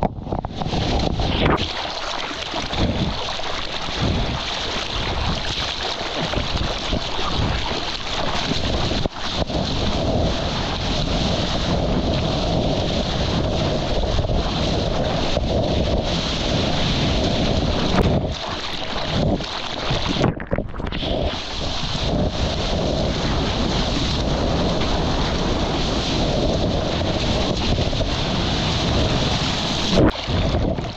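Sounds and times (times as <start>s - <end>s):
water sloshing and splashing: 0.0s - 30.9s
wind noise on microphone: 0.0s - 30.9s
small wave breaking: 0.5s - 10.0s, 16.1s - 30.9s.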